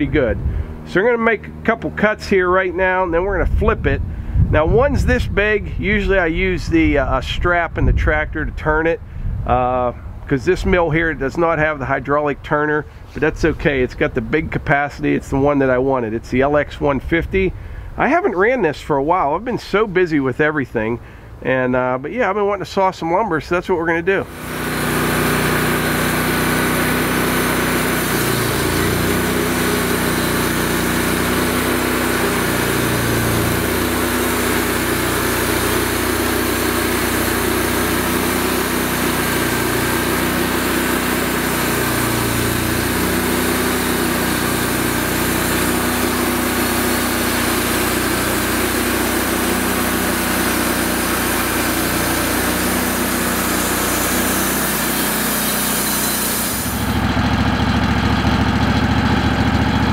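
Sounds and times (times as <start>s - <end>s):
bandsaw mill cutting log: 0.0s - 4.0s, 24.1s - 59.9s.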